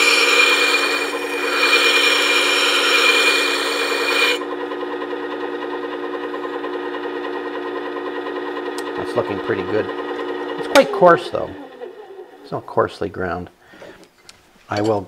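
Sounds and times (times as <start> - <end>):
metal grinding rasp: 0.0 - 4.5
sharpener motor hum: 0.0 - 12.2.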